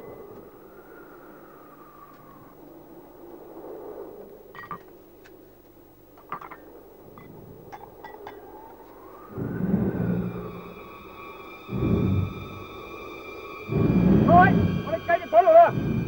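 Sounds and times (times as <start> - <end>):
low hum: 6.0 - 16.0
tense drama music: 8.4 - 16.0.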